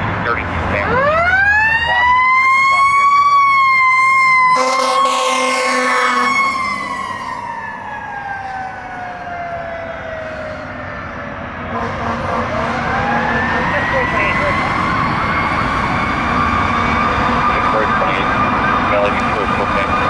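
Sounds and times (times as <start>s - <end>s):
fire truck siren wailing: 0.4s - 20.0s
horn blast: 4.5s - 6.9s, 11.6s - 13.8s.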